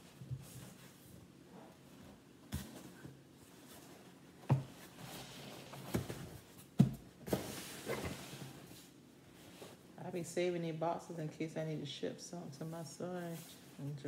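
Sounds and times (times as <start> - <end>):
cardboard rustling and scraping: 0.1 - 9.8.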